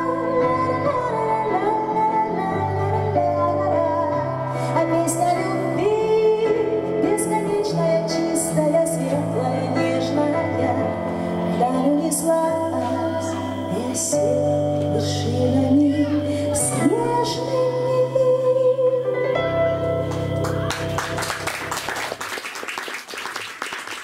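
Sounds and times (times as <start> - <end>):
woman singing: 0.0 - 19.5
instrumental accompaniment with bass: 0.0 - 22.4
audience applause: 20.1 - 24.0.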